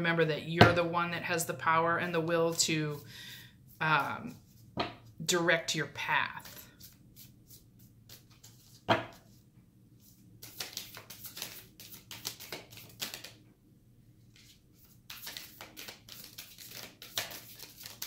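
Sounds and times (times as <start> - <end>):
cards being shuffled: 6.3 - 9.4, 10.0 - 13.4, 14.3 - 18.0.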